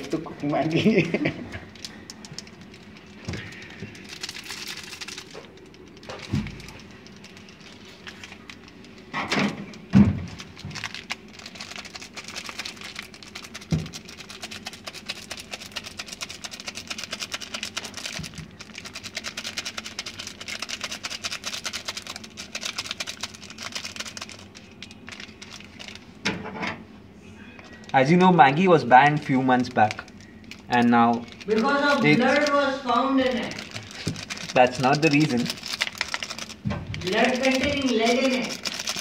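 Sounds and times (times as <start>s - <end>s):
foil sachet crinkling: 0.0s - 26.2s, 27.6s - 39.0s.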